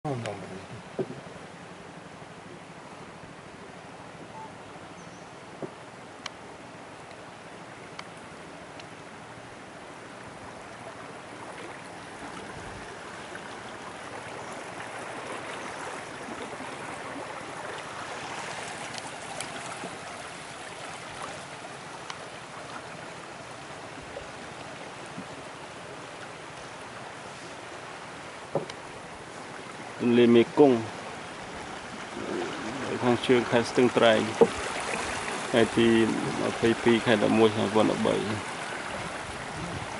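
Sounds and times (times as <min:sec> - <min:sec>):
fast-flowing river rushing: 0:00.3 - 0:39.9
faint clicks: 0:05.6 - 0:06.4, 0:07.9 - 0:08.9, 0:22.0 - 0:22.2.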